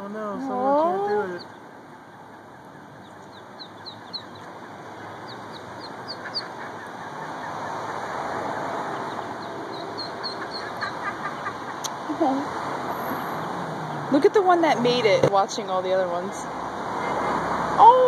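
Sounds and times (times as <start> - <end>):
background noise: 0.0 - 18.0
ducklings peeping: 0.2 - 12.4.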